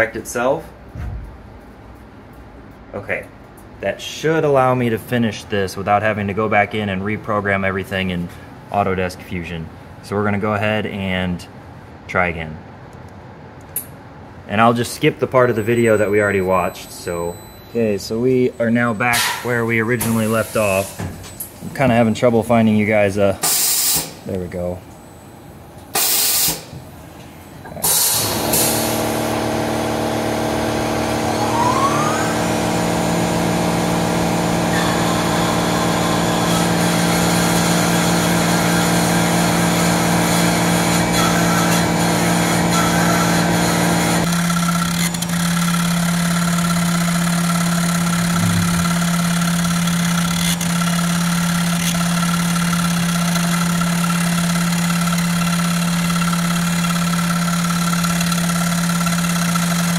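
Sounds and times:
short hissing bursts: 0:23.4 - 0:24.2, 0:26.0 - 0:26.7
milling machine hum and whine: 0:27.0 - 0:59.9.

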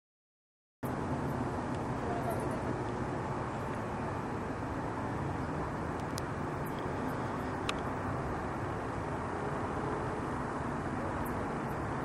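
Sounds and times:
low outdoor rumble: 0:00.8 - 0:12.0
faint high ticks: 0:05.9 - 0:07.9.

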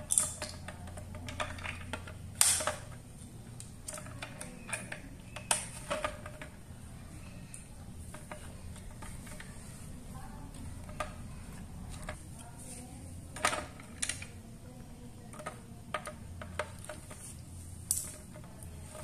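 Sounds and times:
plastic toy parts clicking: 0:00.0 - 0:06.6, 0:13.2 - 0:14.4, 0:15.1 - 0:19.0.

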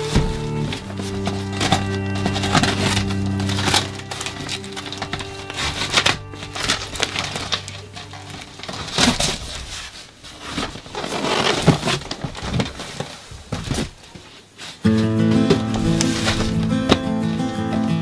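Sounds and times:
background music: 0:00.0 - 0:09.3, 0:14.9 - 0:18.0
packing tape ripping: 0:00.0 - 0:13.1, 0:14.9 - 0:17.8
cardboard flaps scraping: 0:00.0 - 0:18.0.

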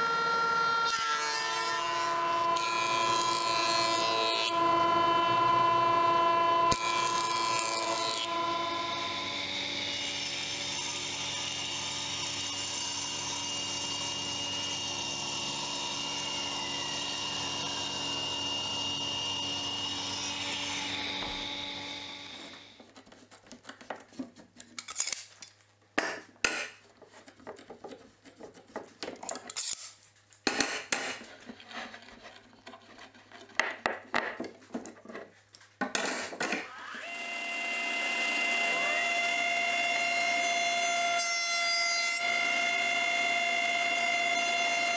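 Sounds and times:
table saw cutting board: 0:00.0 - 0:23.0, 0:35.9 - 0:44.9.

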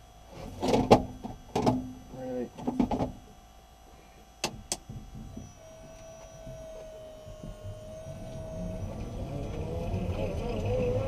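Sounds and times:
electric motor whine: 0:00.0 - 0:11.0
low rumble of moving car: 0:05.0 - 0:11.0.

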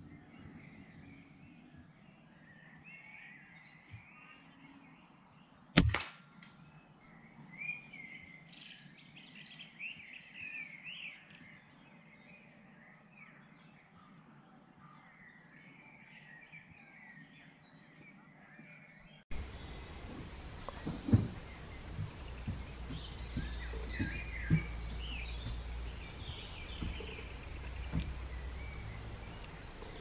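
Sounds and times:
air rifle shot: 0:05.8 - 0:06.4
small birds chirping: 0:06.5 - 0:30.0.

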